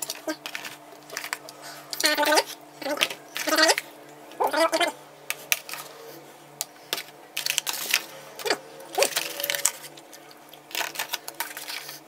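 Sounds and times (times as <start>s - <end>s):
plastic squeaks: 7.6s - 9.9s.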